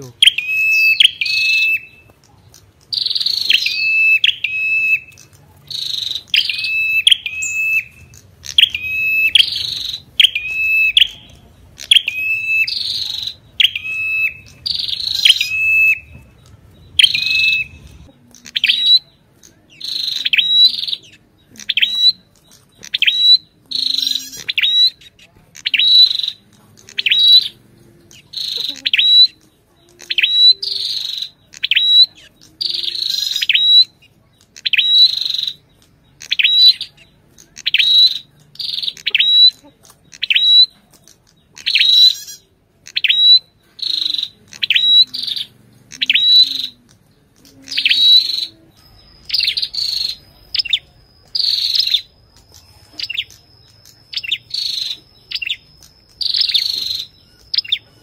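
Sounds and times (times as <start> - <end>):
bird calling high notes: 0.0 - 2.1, 2.9 - 35.6.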